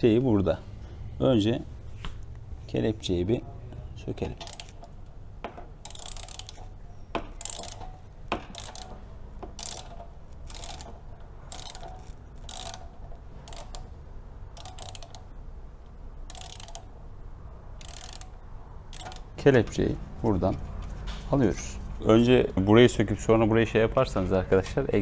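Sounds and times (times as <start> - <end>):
torque wrench ratchet clicking: 4.4 - 5.0, 5.8 - 13.9, 14.5 - 15.3, 16.2 - 16.9, 17.8 - 19.4.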